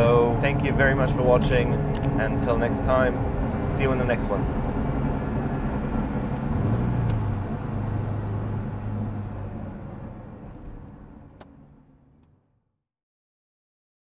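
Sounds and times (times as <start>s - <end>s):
car engine drone: 0.0s - 12.6s
road noise: 0.0s - 12.6s.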